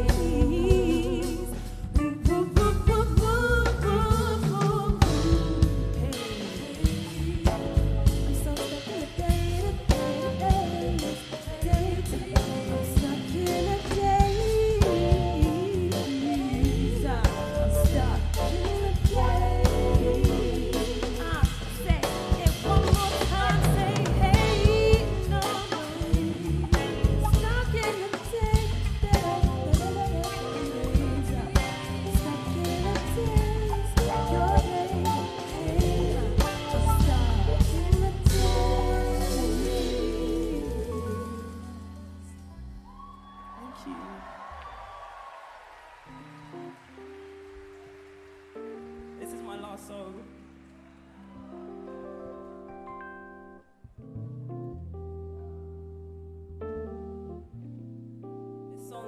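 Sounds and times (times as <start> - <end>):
strong bass: 0.0 - 6.2, 6.8 - 8.6, 9.3 - 27.8, 28.4 - 43.9
woman singing: 0.0 - 42.6, 58.8 - 59.0
live band music: 0.0 - 53.2.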